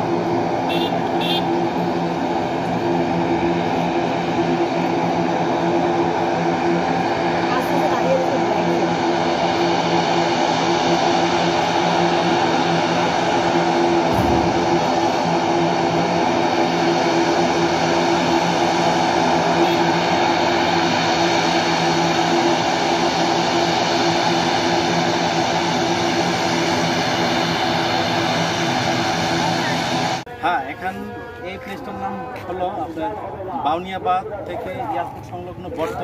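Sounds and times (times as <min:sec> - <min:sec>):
turboprop engines droning: 0:00.0 - 0:36.0
brief thump: 0:14.1 - 0:14.8.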